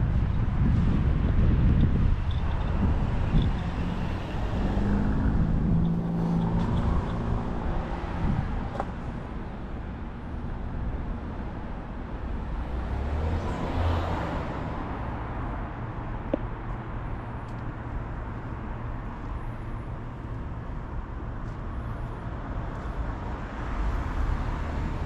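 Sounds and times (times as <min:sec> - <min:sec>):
rumble of passing traffic: 0:00.0 - 0:25.0
vehicle engine hum: 0:00.0 - 0:25.0.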